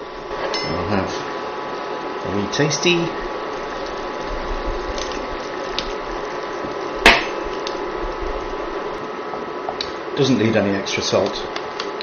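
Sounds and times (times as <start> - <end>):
induction hob humming: 0.0 - 12.0
mince simmering in a pan: 1.0 - 10.2.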